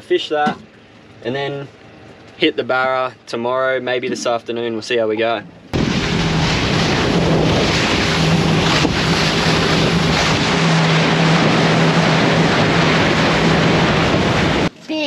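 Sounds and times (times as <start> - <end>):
boat engine drone: 0.0 - 14.8
water rushing against hull: 5.5 - 14.7
wind buffeting microphone: 5.7 - 14.7.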